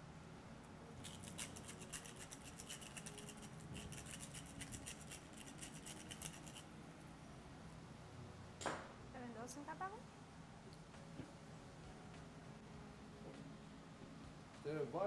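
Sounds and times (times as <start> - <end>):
pepper mill grinding: 1.0 - 6.7.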